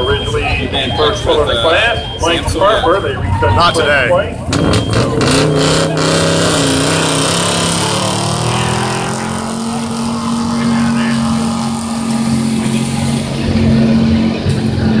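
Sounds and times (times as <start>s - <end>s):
truck engine at high revs: 0.0s - 15.0s.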